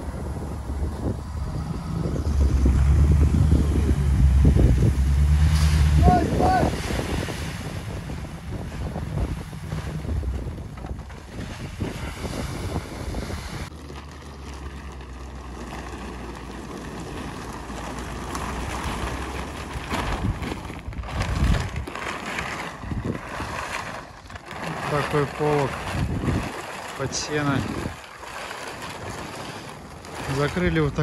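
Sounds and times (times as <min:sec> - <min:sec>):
wind on microphone: 0:00.0 - 0:13.7, 0:17.2 - 0:31.0
plastic tarp rustling and flapping: 0:00.0 - 0:31.0.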